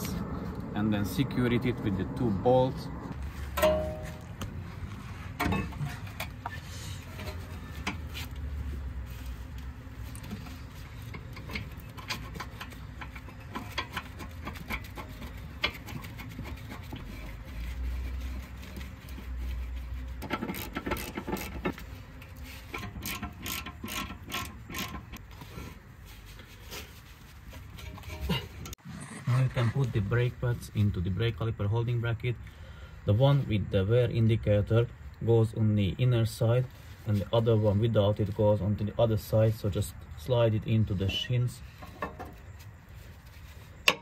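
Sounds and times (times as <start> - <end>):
ratchet wrench clicking: 20.2 - 21.7, 22.8 - 25.2.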